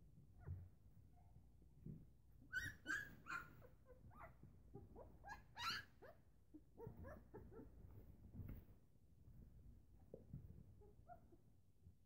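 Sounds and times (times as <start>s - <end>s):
puppies whimpering and squealing: 2.5s - 6.2s, 6.8s - 7.9s.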